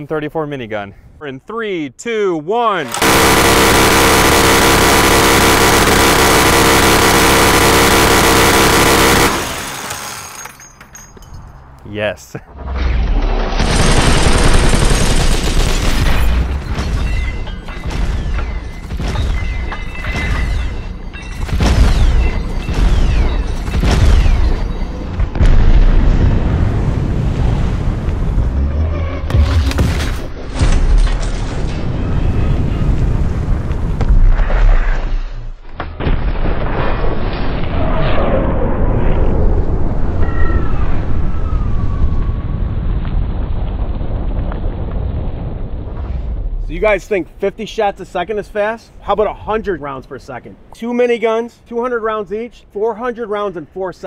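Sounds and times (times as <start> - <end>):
minigun firing: 2.9 - 10.4, 13.5 - 17.1
slowed-down booming gunfire: 3.0 - 10.0, 13.4 - 17.2, 21.5 - 28.6.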